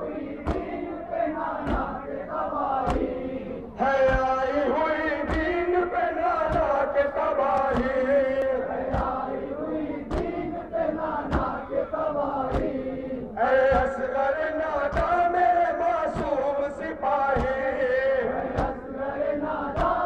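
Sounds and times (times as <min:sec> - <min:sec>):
men chanting a lament: 0:00.0 - 0:20.0
hands beating on chests: 0:00.4 - 0:00.8, 0:01.6 - 0:02.0, 0:02.8 - 0:03.2, 0:04.0 - 0:04.4, 0:05.2 - 0:05.6, 0:06.4 - 0:06.8, 0:07.6 - 0:08.0, 0:08.9 - 0:09.3, 0:10.1 - 0:10.5, 0:11.2 - 0:11.6, 0:12.4 - 0:12.8, 0:13.7 - 0:14.0, 0:14.9 - 0:15.2, 0:17.3 - 0:17.7, 0:18.5 - 0:18.8, 0:19.8 - 0:20.0.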